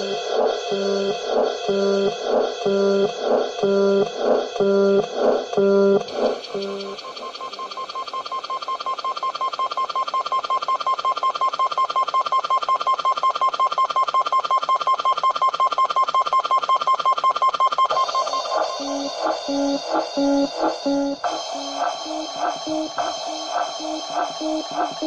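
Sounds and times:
rapid repeating keyboard note: 18.0 - 25.0.

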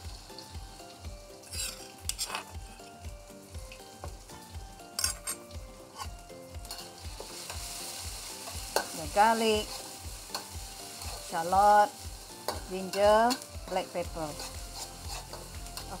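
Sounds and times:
light background music: 0.0 - 16.0
paste sizzling in hot oil: 0.0 - 16.0
metal spatula scraping a pan: 1.4 - 2.7, 5.0 - 7.7, 8.4 - 16.0.

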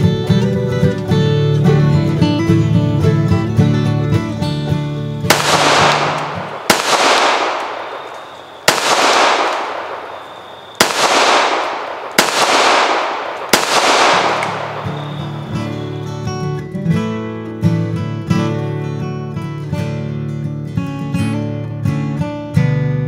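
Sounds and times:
pistol shots with echo: 5.3 - 16.1.

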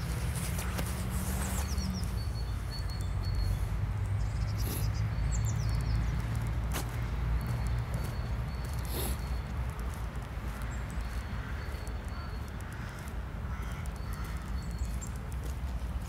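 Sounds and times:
faint footsteps on path: 0.0 - 16.0
songbird singing: 0.0 - 16.0.

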